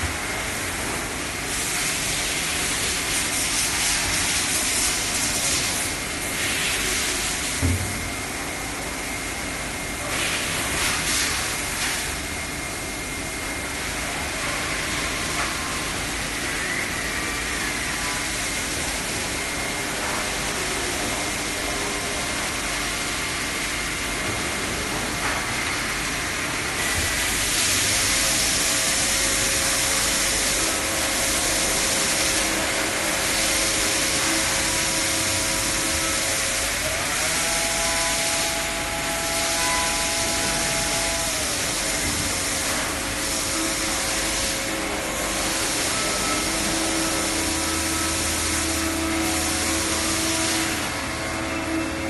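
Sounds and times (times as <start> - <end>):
machine mechanical hiss: 0.0 - 8.2, 9.9 - 52.0
motor whine: 26.8 - 52.0.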